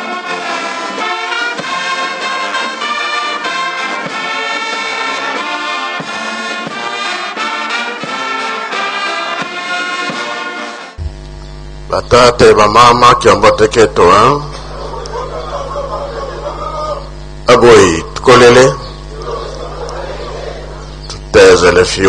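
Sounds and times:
brass band playing: 0:00.0 - 0:11.0.

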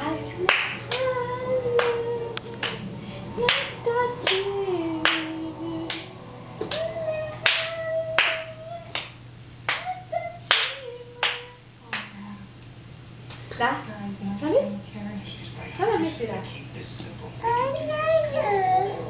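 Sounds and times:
person singing long notes: 0:00.0 - 0:09.0
rhythmic hand clapping: 0:00.0 - 0:12.2.

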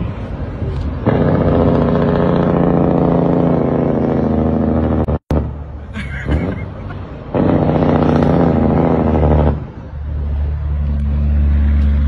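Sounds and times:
diesel engine droning: 0:00.0 - 0:12.0
rapid exhaust rattle: 0:01.0 - 0:10.5.

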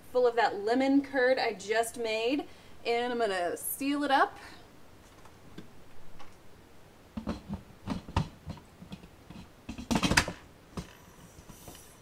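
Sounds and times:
pressure cooker lid knocks and scrapes: 0:07.2 - 0:10.4.

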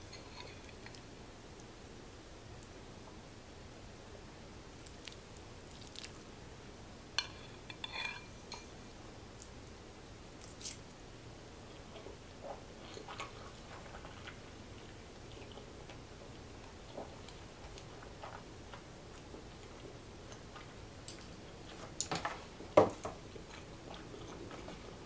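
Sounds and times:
quiet chewing: 0:04.7 - 0:06.3, 0:11.6 - 0:25.0
fork clinking against glass bowl: 0:07.2 - 0:08.7.

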